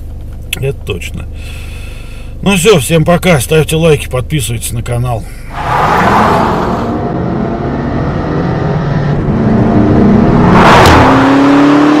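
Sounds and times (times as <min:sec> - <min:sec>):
car engine revving: 0:05.2 - 0:12.0.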